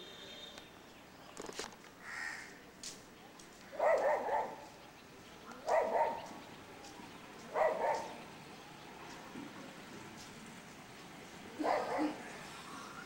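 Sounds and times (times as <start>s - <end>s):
dog barking: 3.8s - 4.7s, 5.6s - 6.3s, 7.5s - 8.2s, 11.6s - 12.2s.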